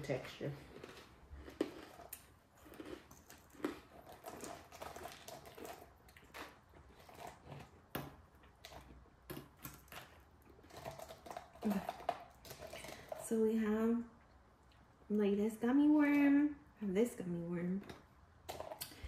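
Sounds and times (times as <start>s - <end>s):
candy crunching: 0.0s - 13.6s.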